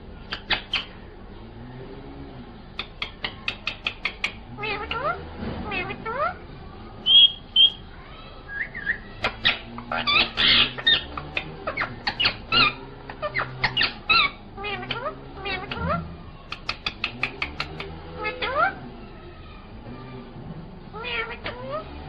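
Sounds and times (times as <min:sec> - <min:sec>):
parakeet clicks: 0:00.3 - 0:00.9, 0:02.8 - 0:05.1, 0:09.2 - 0:13.9, 0:14.7 - 0:18.0
parakeet chirping and squawking: 0:00.3 - 0:01.0, 0:02.8 - 0:06.4, 0:08.7 - 0:18.8, 0:21.0 - 0:21.9
parakeet high whistles: 0:07.0 - 0:07.8.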